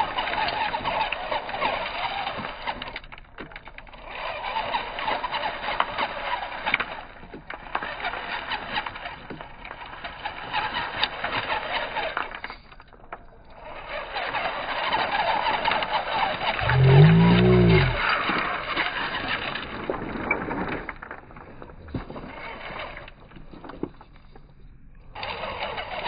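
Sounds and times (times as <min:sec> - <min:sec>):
rc car motors: 0:00.0 - 0:20.1.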